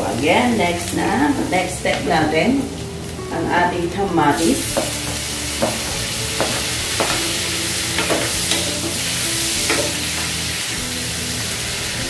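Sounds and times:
vegetables sizzling in a frying pan: 0.0 - 12.0
spatula scraping and knocking pan: 4.7 - 9.0.

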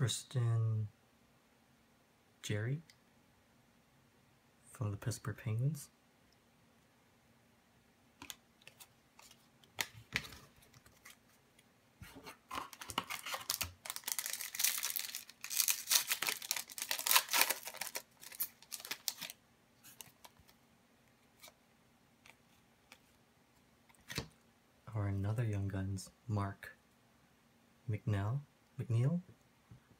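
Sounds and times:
foil wrapper tearing and crinkling: 12.6 - 19.4.

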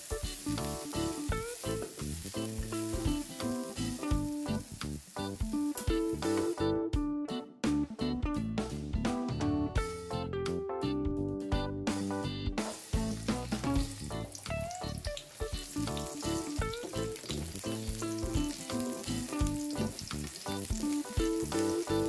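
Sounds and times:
onions sizzling in oil: 0.0 - 6.6, 12.6 - 22.0.

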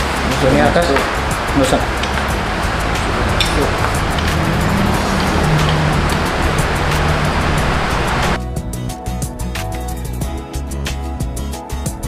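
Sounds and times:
rushing noise: 0.0 - 8.4
sustained notes over a light beat: 0.0 - 12.0.

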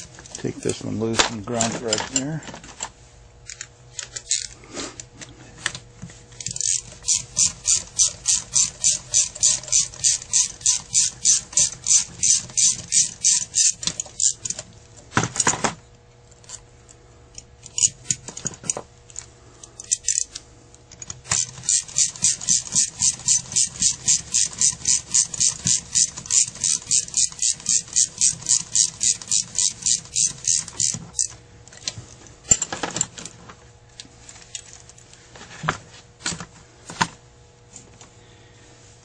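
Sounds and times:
ratchet clicking: 6.4 - 14.5, 19.8 - 20.4, 21.2 - 31.4.

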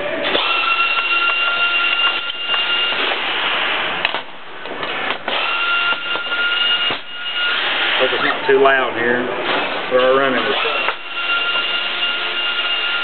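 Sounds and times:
machine hissing and whining: 0.2 - 4.0, 5.3 - 8.7, 9.4 - 13.0.

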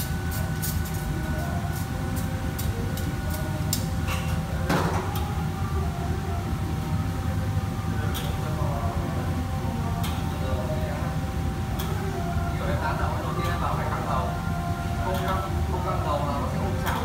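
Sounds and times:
kitchen exhaust hood roar: 0.0 - 17.0
metal utensils and pans clinking: 4.0 - 5.0.

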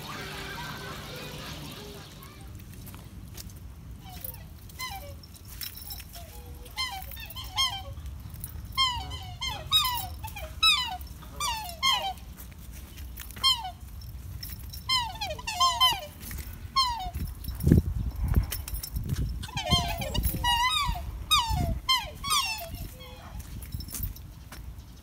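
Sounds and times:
squeaky whistle-like animal calls: 6.2 - 8.0, 8.8 - 12.2, 19.4 - 23.4.

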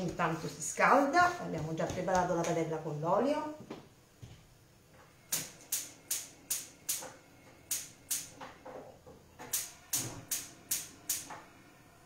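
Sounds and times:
gas igniter clicking: 5.3 - 7.1, 7.7 - 8.3, 9.4 - 11.3.

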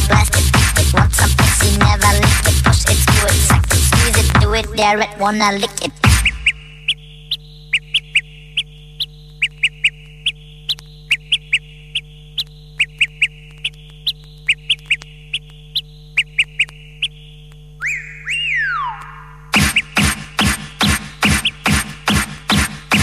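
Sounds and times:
high chirping blips: 6.0 - 21.8
synth tone sliding in pitch: 17.8 - 19.5.

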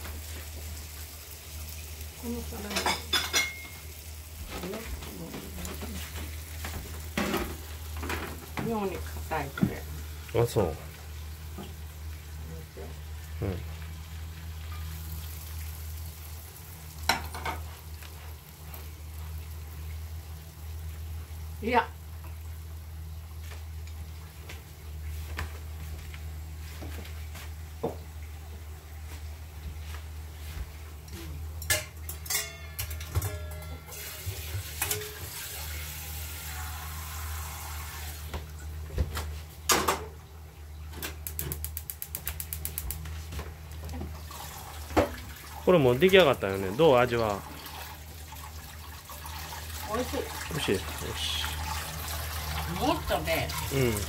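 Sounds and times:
snap peas sizzling in a frying pan: 0.0 - 54.0
pot clanking: 2.7 - 3.8, 31.6 - 35.4
tap running water into saucepan: 6.2 - 10.4, 27.8 - 28.1, 33.1 - 40.2, 40.9 - 46.4.

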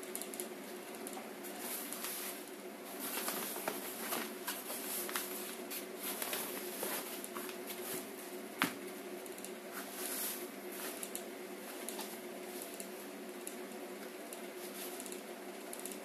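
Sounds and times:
cloth crackling and rustling: 1.5 - 8.3.

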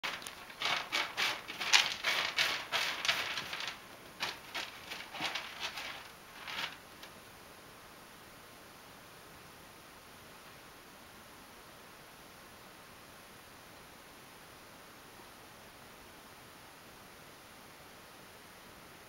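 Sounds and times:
cat scratching litter: 0.0 - 7.1.

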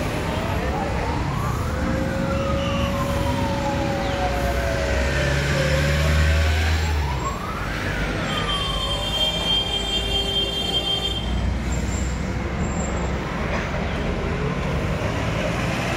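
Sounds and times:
siren wailing: 0.0 - 9.5
street traffic noise: 0.0 - 15.9.

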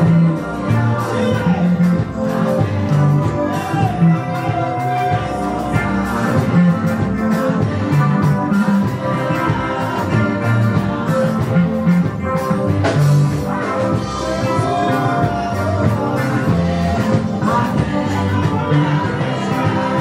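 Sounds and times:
guitar: 0.0 - 20.0
live worship band music: 0.0 - 20.0.

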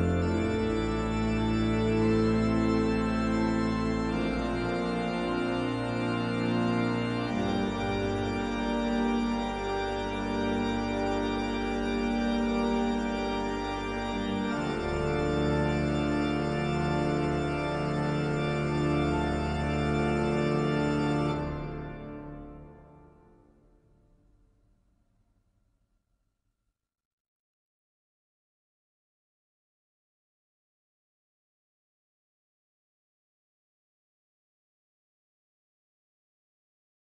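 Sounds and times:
organ playing slow chords: 0.0 - 23.9.

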